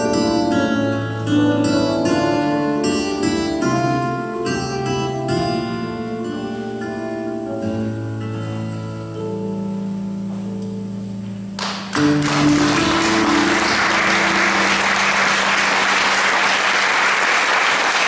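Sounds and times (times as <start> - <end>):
audience applauding: 11.6 - 18.0.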